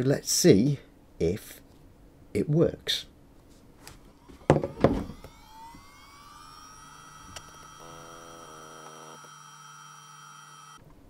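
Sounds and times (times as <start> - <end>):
hard drive spinning up whine: 4.0 - 10.8.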